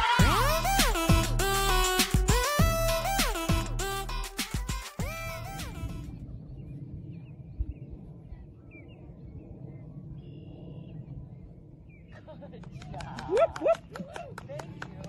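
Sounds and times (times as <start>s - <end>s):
background music: 0.0s - 6.1s
wind rumbling on microphone: 5.8s - 15.0s.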